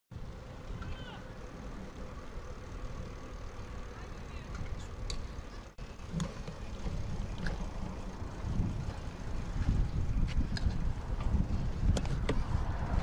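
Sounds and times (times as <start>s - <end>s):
tyre noise on asphalt: 0.2s - 13.0s
wind buffeting microphone: 6.1s - 13.0s.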